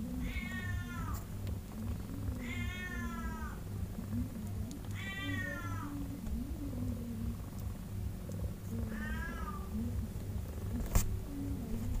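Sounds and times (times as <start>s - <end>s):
kitten mewing: 2.3s - 3.6s, 4.9s - 6.0s, 8.8s - 9.7s.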